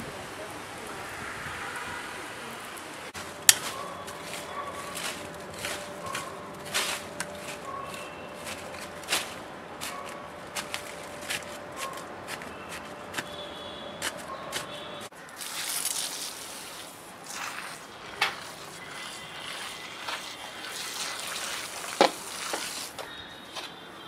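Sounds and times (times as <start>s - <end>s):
trowel scraping in soil: 3.2s - 23.0s.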